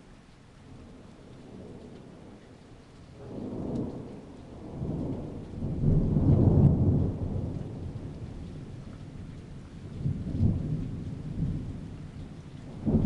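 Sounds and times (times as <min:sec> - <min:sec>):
thunder rumbling: 0:03.2 - 0:13.0.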